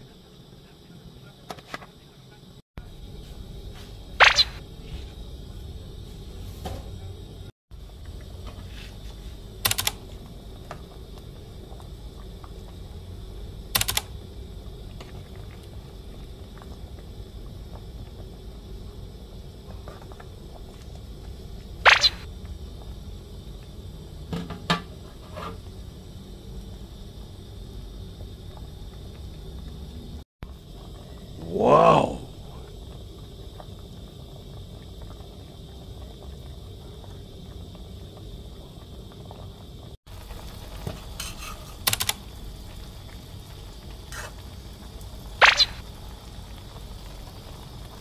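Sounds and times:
pot of curry boiling: 4.6s - 31.3s, 32.7s - 48.0s
sharp clicks: 9.7s - 10.0s, 13.8s - 14.1s, 41.9s - 42.2s.

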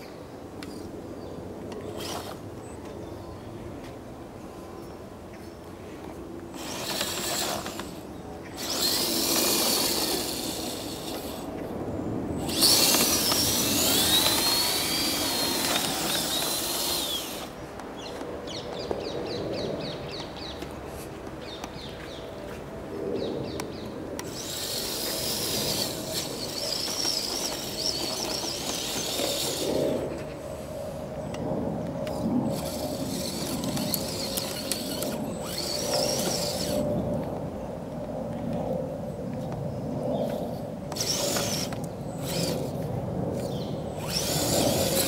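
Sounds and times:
toy truck electric motor whining: 2.0s - 2.4s, 6.5s - 11.5s, 12.4s - 17.6s, 24.2s - 30.7s, 32.0s - 36.9s, 40.4s - 45.0s.

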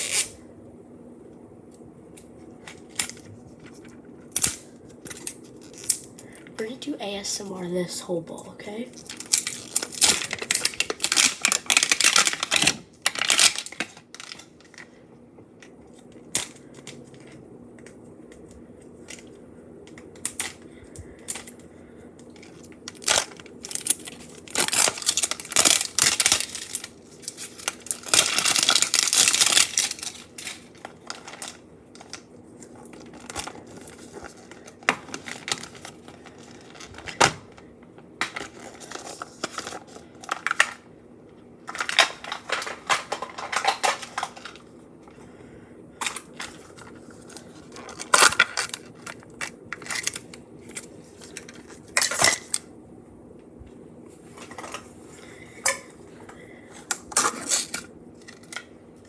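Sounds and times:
plastic wrapper crinkling and tearing: 0.0s - 0.4s, 2.6s - 6.8s, 8.9s - 15.0s, 19.0s - 40.8s, 41.6s - 44.8s, 46.0s - 52.7s, 56.8s - 58.8s.

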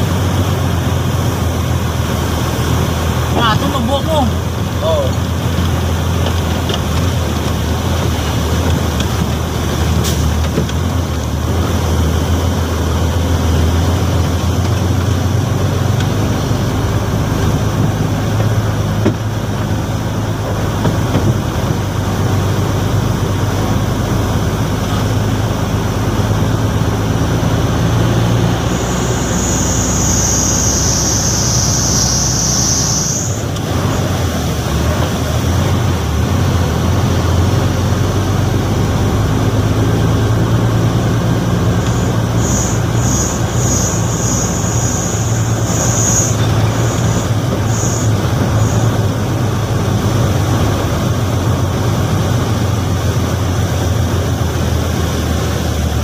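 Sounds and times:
diesel truck engine running: 0.0s - 56.0s
high hiss: 28.2s - 33.5s, 41.9s - 49.1s.

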